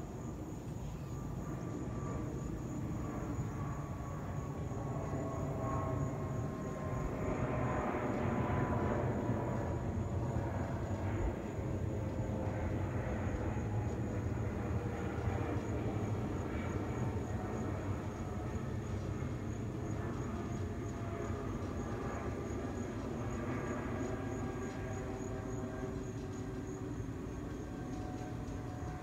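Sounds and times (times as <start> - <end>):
jet airliner passing overhead: 0.0 - 29.0.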